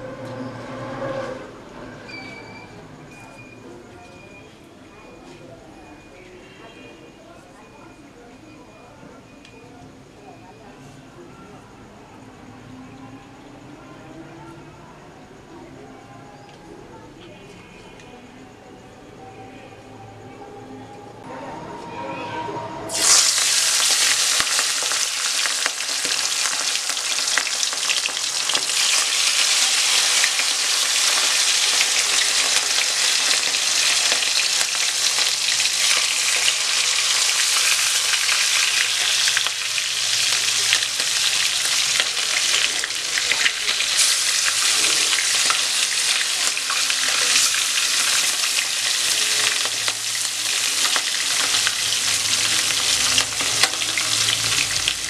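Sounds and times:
fish sizzling in hot oil: 22.9s - 55.0s.

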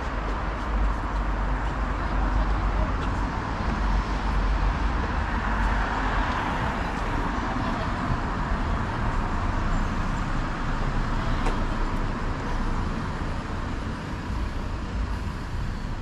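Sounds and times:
city street traffic: 0.0s - 16.0s.

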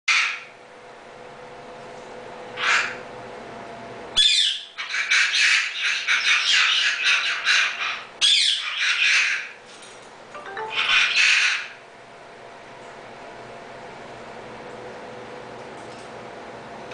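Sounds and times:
cockatoo calling: 2.6s - 3.0s, 4.2s - 9.6s, 10.5s - 11.8s.

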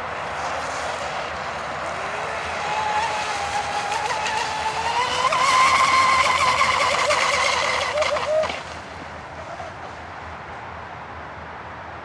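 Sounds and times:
high motor whine: 0.0s - 9.0s
hissing water spray: 0.2s - 8.9s.

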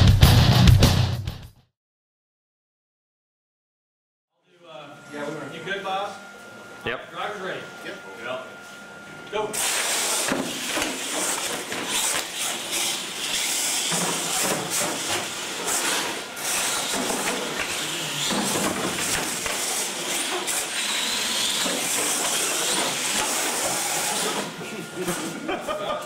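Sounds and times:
toy truck motors whining: 10.1s - 24.6s.

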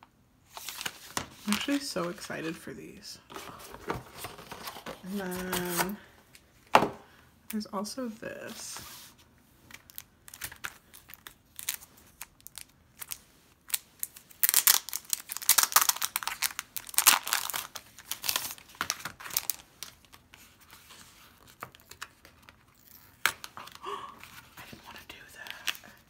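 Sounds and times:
plastic wrapper crinkling and tearing: 0.5s - 2.2s, 9.7s - 26.0s.

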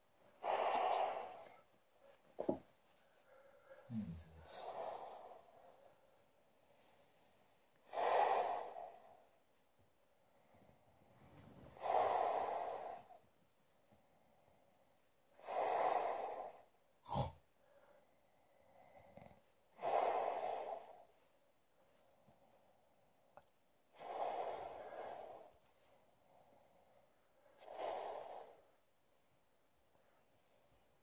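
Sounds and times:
man breathing heavily: 0.4s - 1.7s, 2.4s - 6.0s.

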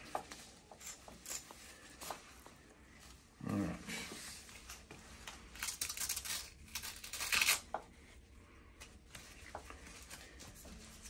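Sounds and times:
strap rustling: 4.1s - 11.0s
velcro strap ripping: 5.5s - 7.8s.

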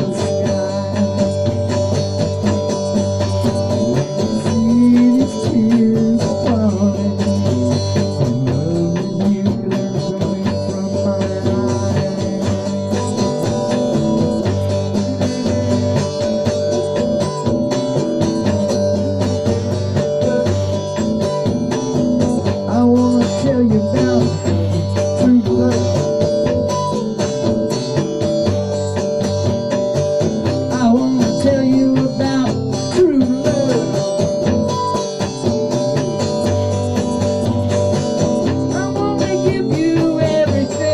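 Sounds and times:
electric guitar with bent notes: 0.0s - 40.9s
sustained accompaniment: 0.0s - 40.9s.

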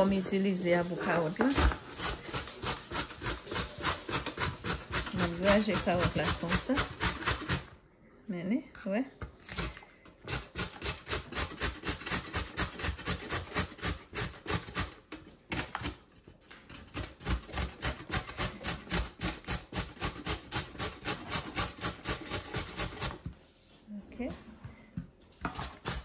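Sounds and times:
carrot grated on hand grater: 1.1s - 7.7s, 10.3s - 15.0s, 16.9s - 23.2s.

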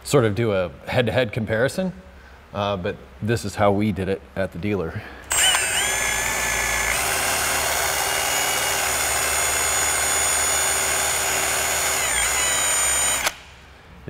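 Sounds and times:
cordless drill whining: 5.3s - 13.5s.

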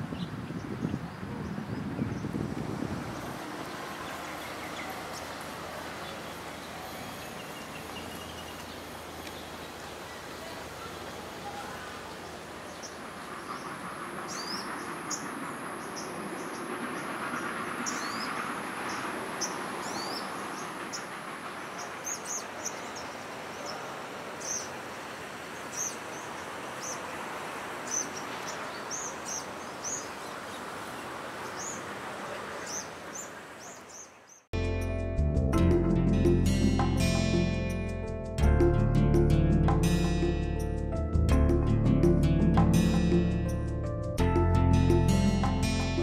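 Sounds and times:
steady rushing background noise: 2.1s - 33.7s
small birds chirping: 3.1s - 34.5s.

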